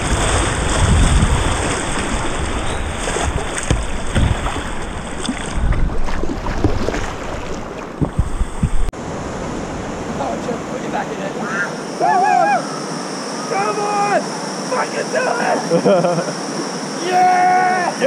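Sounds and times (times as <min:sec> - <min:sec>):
whitewater rushing: 0:00.0 - 0:08.1
paddle strokes splashing: 0:00.0 - 0:08.9
wind buffeting microphone: 0:00.0 - 0:08.9.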